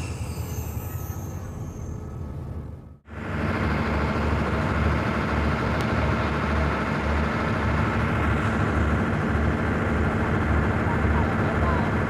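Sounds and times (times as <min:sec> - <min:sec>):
locomotive diesel engine throbbing: 0:00.0 - 0:12.0.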